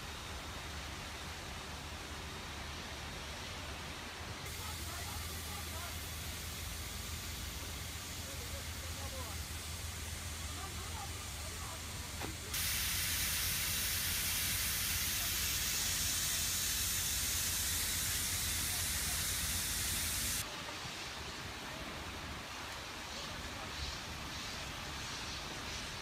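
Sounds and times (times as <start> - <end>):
quiet hiss: 0.0 - 26.0
hose water jets spraying: 4.4 - 20.5.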